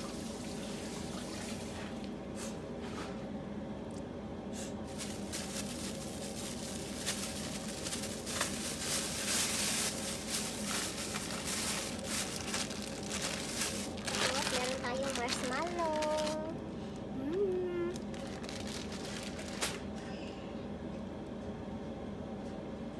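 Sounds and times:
steady low hum: 0.0 - 22.9
kitchen rustling and clatter: 4.9 - 16.5.

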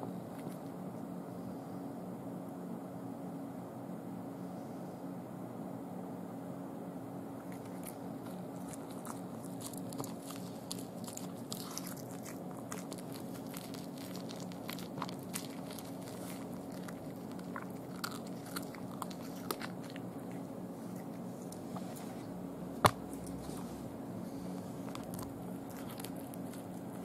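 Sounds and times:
cat crunching bones: 7.4 - 21.8, 22.7 - 23.6, 24.4 - 27.0.

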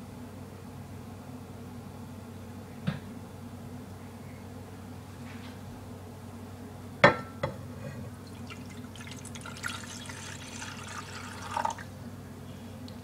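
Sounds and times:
water pouring and splashing: 8.3 - 11.9.

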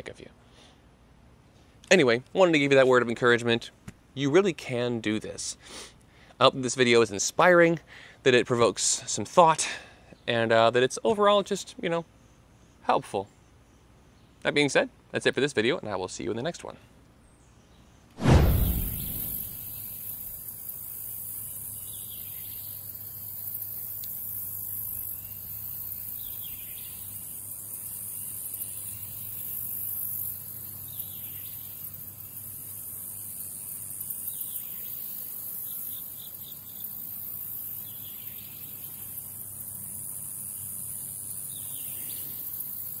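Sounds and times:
insects shrilling: 18.2 - 43.0.

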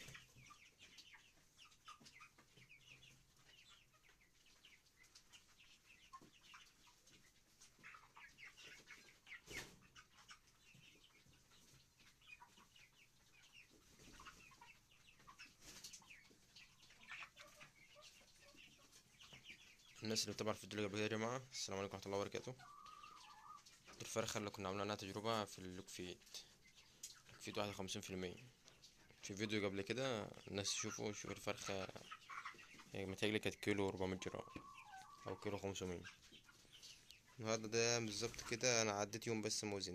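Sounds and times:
chickens chirping and clucking: 0.0 - 39.9.

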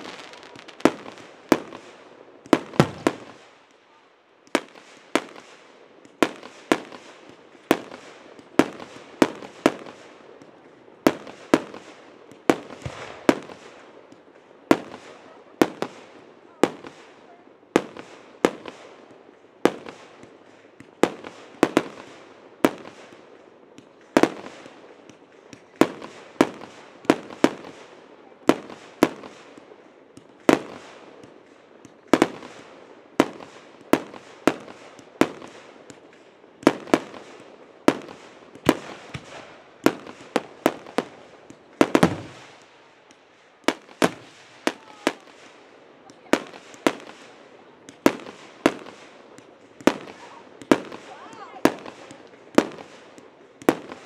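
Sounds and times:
fireworks bursting with echo: 0.0 - 54.0.

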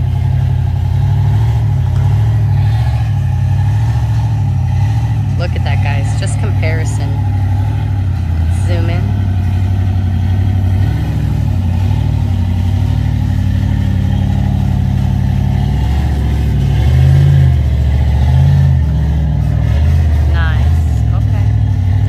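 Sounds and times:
off-road vehicle engine running: 0.0 - 22.0.

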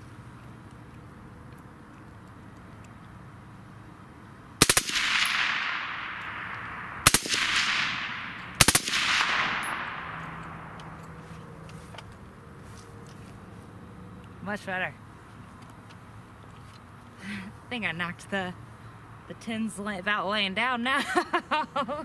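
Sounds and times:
gunshot echo: 4.6 - 11.0
suppressed rifle full-auto bursts: 4.6 - 11.3.

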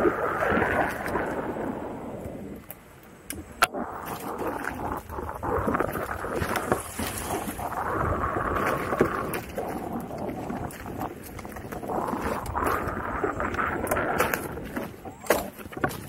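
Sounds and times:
tyre rolling over wooden planks: 4.0 - 16.0.

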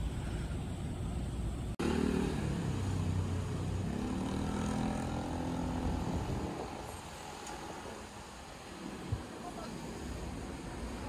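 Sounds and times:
road traffic: 0.0 - 11.0
vehicle engine passing: 1.8 - 7.4.

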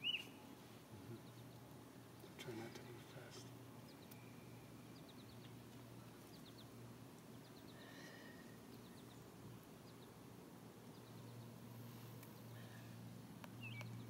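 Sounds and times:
faint high chirps: 0.0 - 0.4, 3.8 - 6.6
low steady hum: 0.0 - 14.0.

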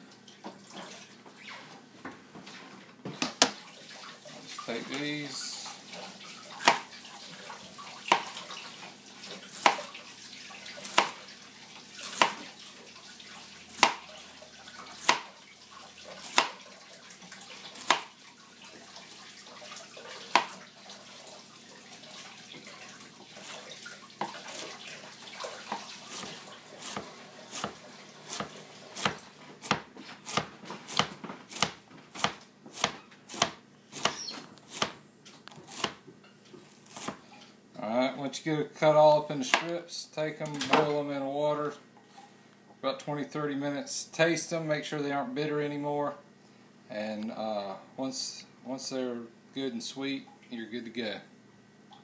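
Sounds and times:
knife chopping on cutting board: 6.6 - 6.9, 8.1 - 8.4, 9.5 - 9.9, 10.8 - 11.2, 12.0 - 12.5, 13.8 - 14.1, 15.0 - 15.3, 16.2 - 16.6, 17.8 - 18.1, 20.3 - 20.6, 25.7 - 35.0, 35.6 - 36.0, 36.9 - 37.2.

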